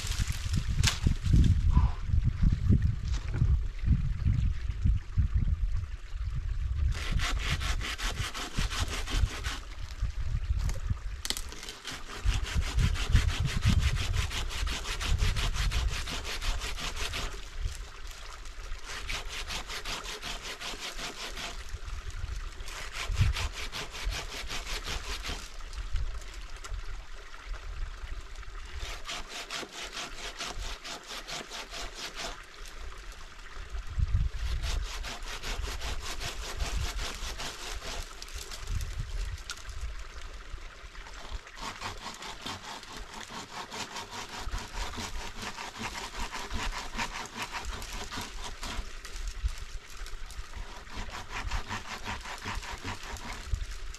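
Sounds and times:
hand saw cutting branch: 6.9s - 9.9s, 10.7s - 17.8s, 18.8s - 21.8s, 22.6s - 25.6s, 28.7s - 32.5s, 34.4s - 38.9s, 41.2s - 49.6s, 50.5s - 53.8s.

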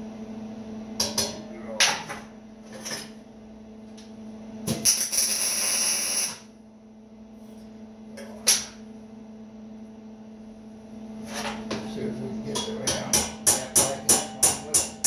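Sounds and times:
steady low hum: 0.0s - 15.0s
hammer striking steel: 12.6s - 15.0s.

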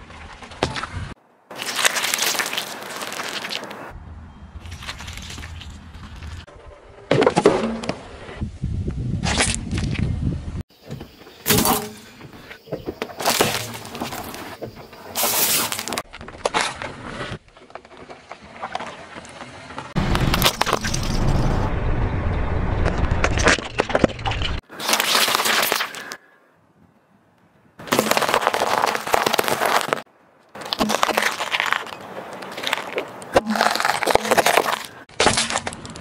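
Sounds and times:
tyre crushing plastic: 13.2s - 14.5s, 27.8s - 36.0s.

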